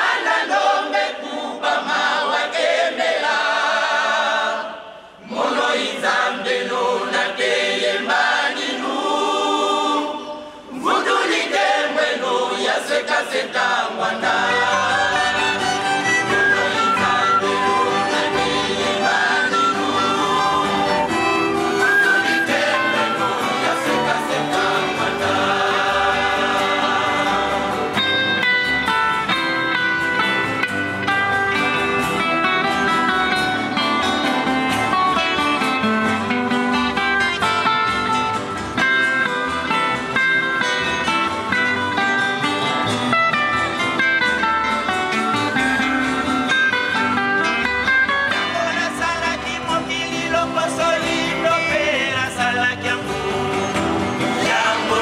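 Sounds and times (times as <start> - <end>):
choir singing: 0.0 - 30.4, 47.6 - 55.0
acoustic guitars: 0.0 - 55.0.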